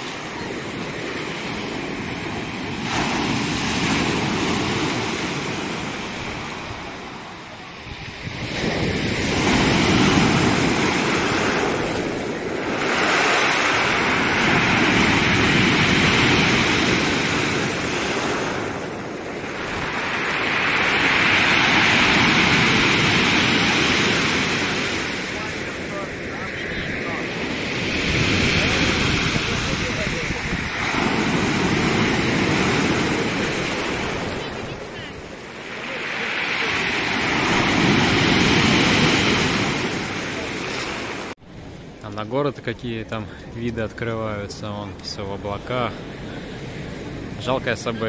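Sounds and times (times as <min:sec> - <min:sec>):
waves breaking on pebbles: 0:00.0 - 0:07.2, 0:08.4 - 0:26.1.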